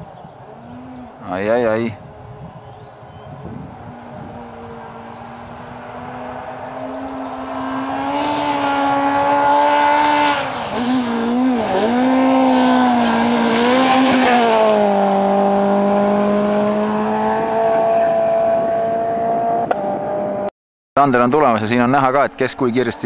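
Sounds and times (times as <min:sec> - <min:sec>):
rally car engine revving: 0:03.8 - 0:20.5.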